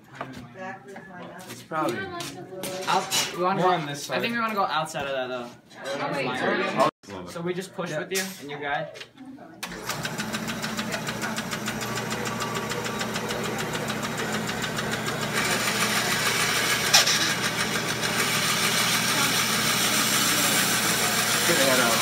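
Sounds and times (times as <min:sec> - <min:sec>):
bandsaw motor hum: 0:09.6 - 0:22.0.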